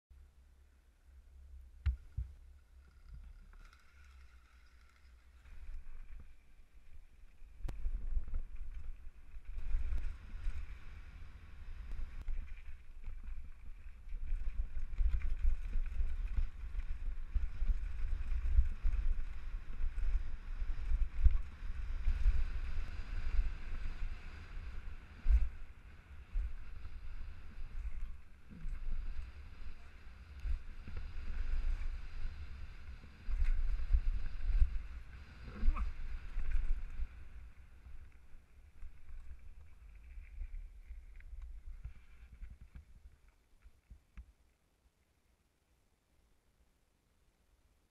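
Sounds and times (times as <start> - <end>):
wind buffeting microphone: 7.6 - 38.2.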